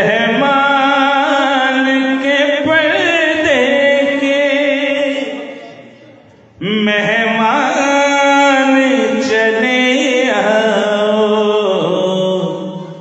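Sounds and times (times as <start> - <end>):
man singing through loudspeakers: 0.0 - 13.0.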